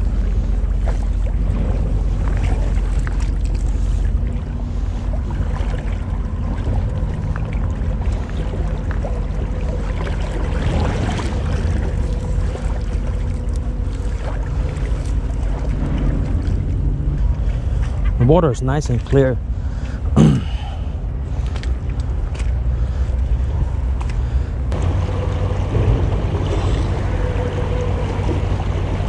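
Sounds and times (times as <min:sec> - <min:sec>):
shallow creek rushing: 0:24.7 - 0:29.0.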